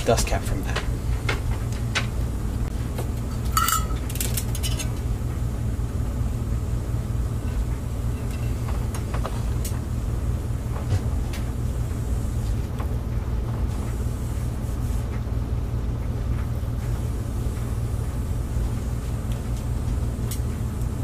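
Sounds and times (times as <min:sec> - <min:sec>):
steady low rumble: 0:00.0 - 0:21.0
metallic clink: 0:03.5 - 0:04.9.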